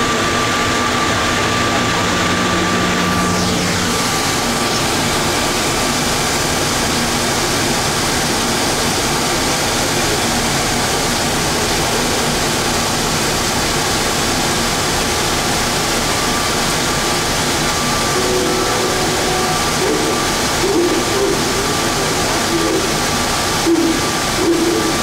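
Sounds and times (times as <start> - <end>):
rushing noise inside train car: 0.0 - 25.0
faint high tone: 18.0 - 21.4.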